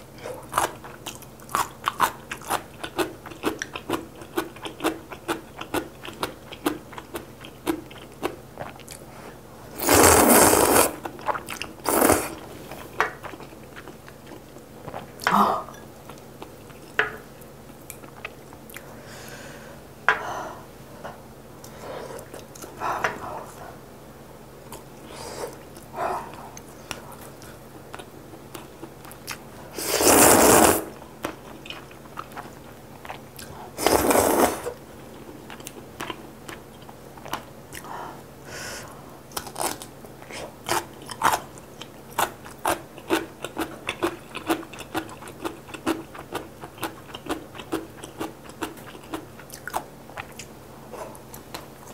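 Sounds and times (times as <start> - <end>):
slurping noodles: 9.7 - 11.0, 11.8 - 12.6, 29.7 - 31.0, 33.8 - 34.8.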